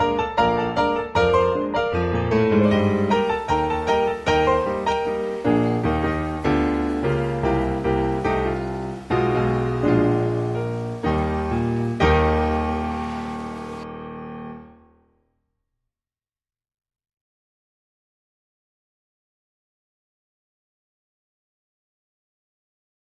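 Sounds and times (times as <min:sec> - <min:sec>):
solo piano music: 0:00.0 - 0:15.2.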